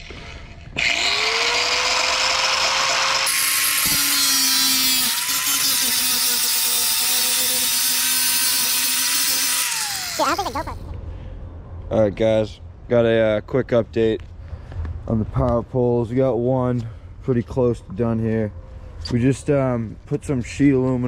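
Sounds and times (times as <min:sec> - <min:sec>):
power tool whine: 0:00.0 - 0:10.6
harsh grinding: 0:00.0 - 0:10.8.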